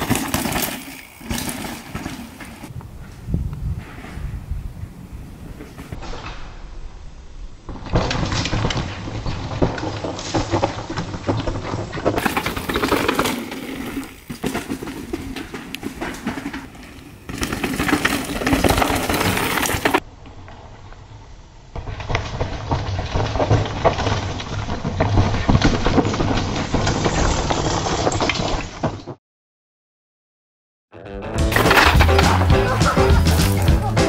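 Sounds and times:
bike knocks and rattles: 0:00.0 - 0:02.8, 0:07.7 - 0:20.0, 0:31.5 - 0:34.0
bike tyres crunching and skidding on dirt: 0:00.0 - 0:06.6, 0:07.6 - 0:29.2, 0:31.4 - 0:34.0.

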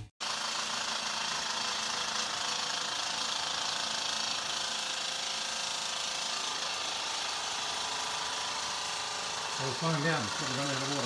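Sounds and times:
fast mechanical rattle: 0:00.2 - 0:11.0
steam hissing: 0:06.2 - 0:11.0.

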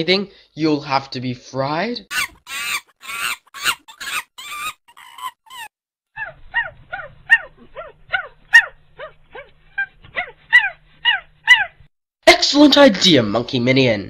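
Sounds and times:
monkey chattering: 0:02.1 - 0:11.8.

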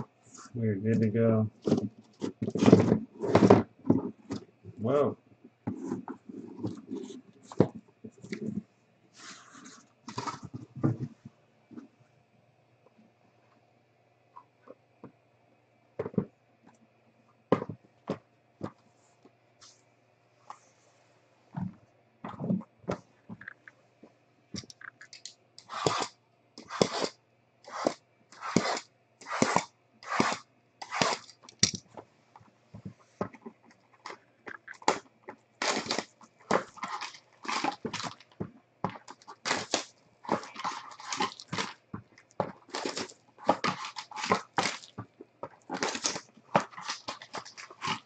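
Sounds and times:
shrink wrap tearing and crinkling: 0:25.0 - 0:31.8, 0:34.0 - 0:45.0, 0:45.6 - 0:48.0.

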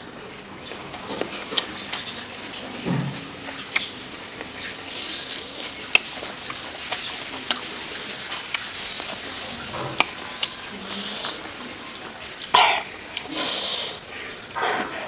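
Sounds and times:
wet chewing: 0:00.6 - 0:15.0
mouth clicks and smacks: 0:03.6 - 0:07.6, 0:08.2 - 0:15.0
fingers squishing sticky rice: 0:03.6 - 0:14.1.

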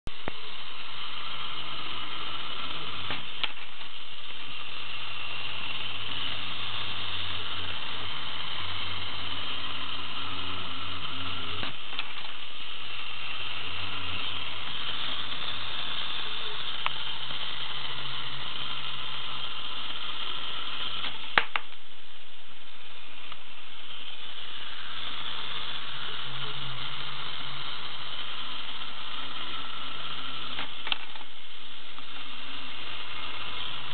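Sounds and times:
clockwork toy motor whirring: 0:00.1 - 0:33.9.

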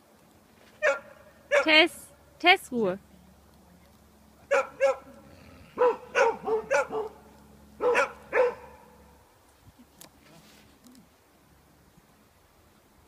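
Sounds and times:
dog barking: 0:00.8 - 0:01.8, 0:04.5 - 0:05.1, 0:05.8 - 0:09.0.

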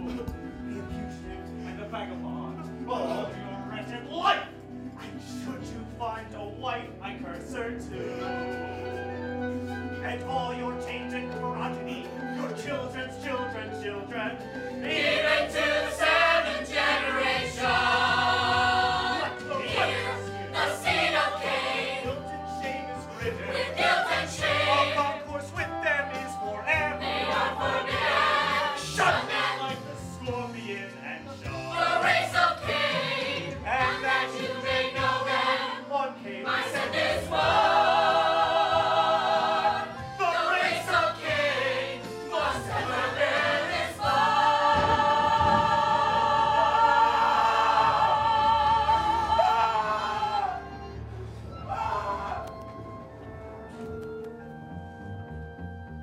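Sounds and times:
choir singing held chords: 0:14.6 - 0:25.3, 0:26.8 - 0:30.0, 0:31.5 - 0:51.8.

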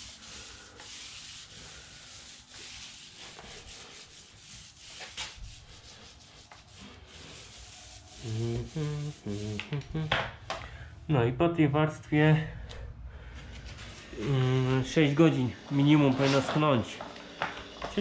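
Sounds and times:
tool scrubbing a surface: 0:00.0 - 0:09.7, 0:13.6 - 0:18.0
man humming: 0:08.2 - 0:10.3, 0:14.2 - 0:14.7.

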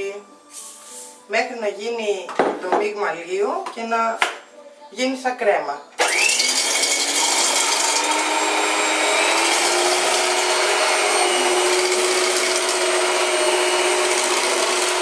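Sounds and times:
stand mixer motor whine: 0:06.0 - 0:15.0.

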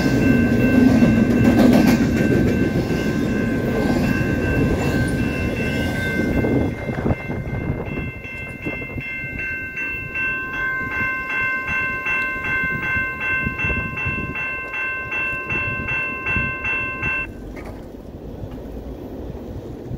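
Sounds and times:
crossing bell ringing: 0:00.0 - 0:17.4
freight train rumbling past: 0:00.0 - 0:19.9.

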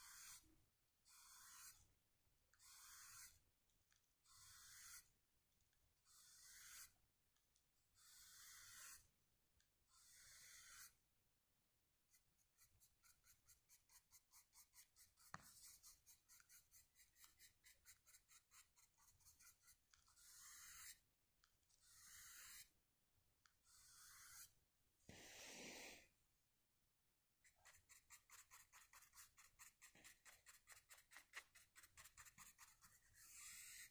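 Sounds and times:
paintbrush strokes scratching: 0:12.1 - 0:21.0, 0:23.7 - 0:26.0, 0:27.5 - 0:33.9.

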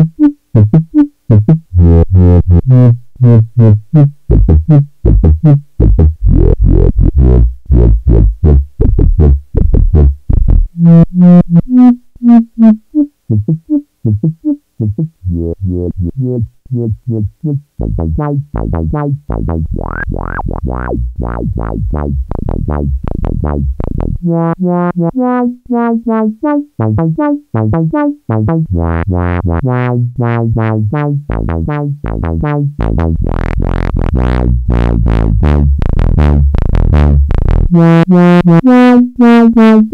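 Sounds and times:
synth sequence with filter sweeps: 0:17.8 - 0:25.5.

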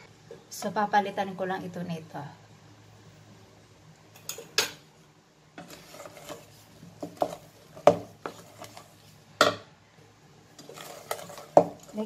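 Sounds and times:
wooden spatula scraping metal bowl: 0:05.6 - 0:09.3, 0:10.5 - 0:12.0.

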